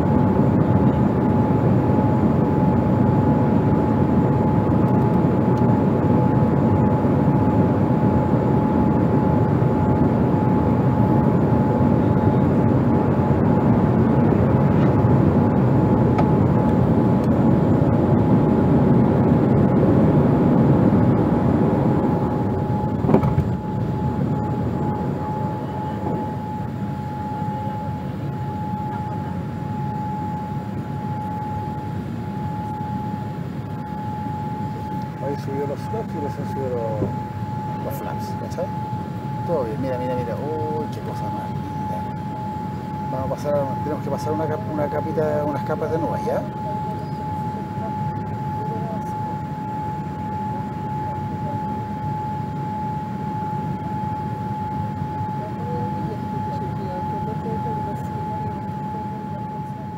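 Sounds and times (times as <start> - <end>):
aircraft engine low rumble: 0.0 - 59.9
airliner cabin roar: 0.0 - 59.9
steady high whine: 0.0 - 59.9
high-pitched tone: 22.4 - 52.2.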